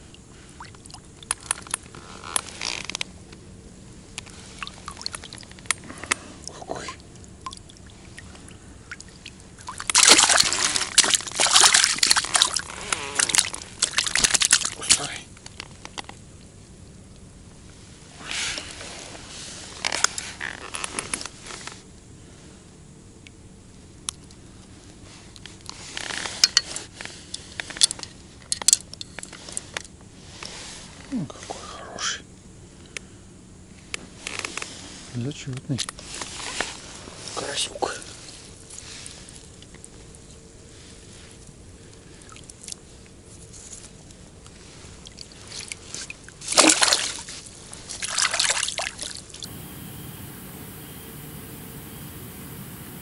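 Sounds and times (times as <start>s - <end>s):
faint water drips: 0.1s - 1.8s, 4.1s - 10.4s, 48.1s - 53.0s
water sloshing and splashing: 6.9s - 12.6s, 13.2s - 14.8s, 44.6s - 53.0s.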